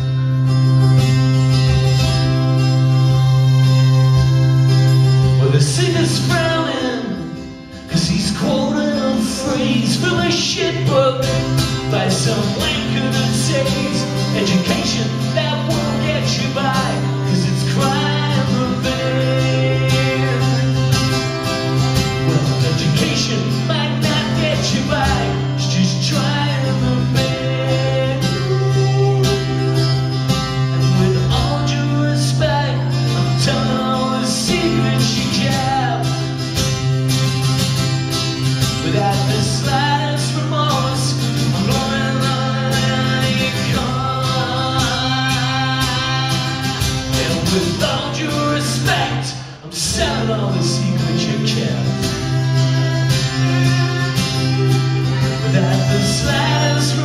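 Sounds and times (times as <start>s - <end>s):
acoustic guitar strumming: 0.0s - 57.0s
man singing into microphone: 5.4s - 21.0s, 22.2s - 29.8s, 30.7s - 36.4s, 38.8s - 52.2s, 55.4s - 57.0s.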